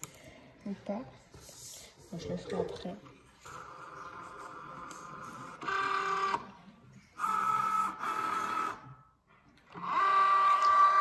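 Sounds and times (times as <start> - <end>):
cutting machine motors whirring: 9.7 - 11.0.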